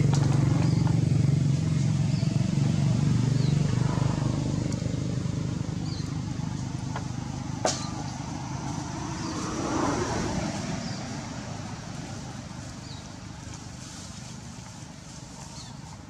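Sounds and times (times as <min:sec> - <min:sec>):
vehicle engine rumbling: 0:00.0 - 0:16.0.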